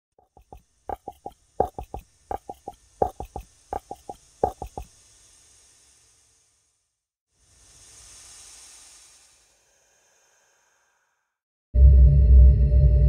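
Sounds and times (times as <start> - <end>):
galloping hoofbeats: 0.3 - 4.9
faint hiss: 2.0 - 11.4.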